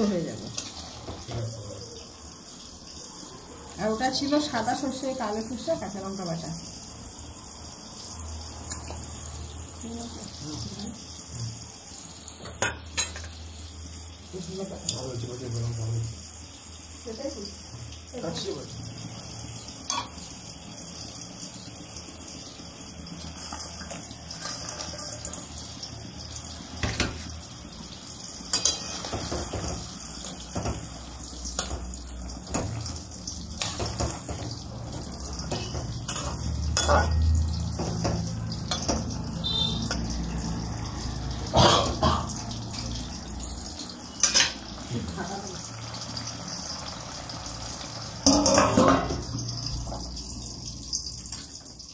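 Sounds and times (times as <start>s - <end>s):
gravy simmering in a wok: 0.0s - 51.9s
metal spatula scraping a pan: 23.4s - 25.5s, 28.5s - 29.8s, 33.6s - 34.6s, 35.4s - 40.4s.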